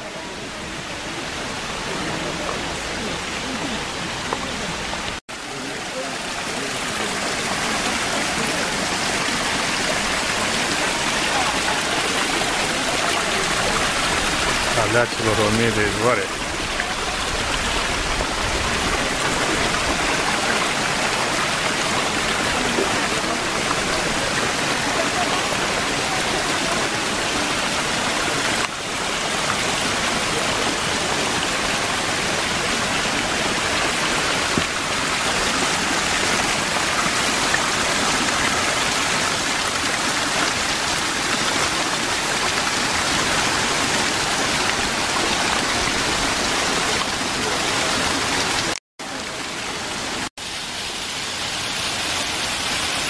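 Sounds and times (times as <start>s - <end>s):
water rushing and splashing: 0.0s - 53.0s.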